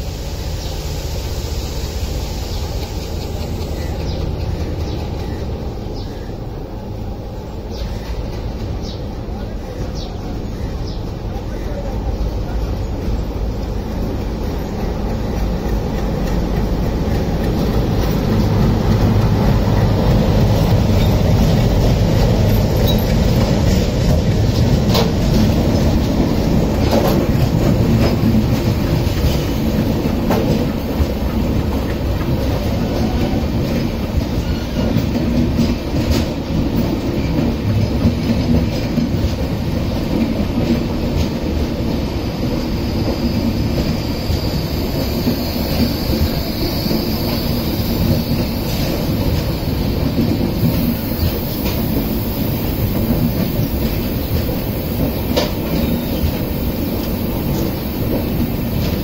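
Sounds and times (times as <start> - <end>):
diesel locomotive passing: 0.0 - 59.0
train coaches rolling by: 0.0 - 59.0.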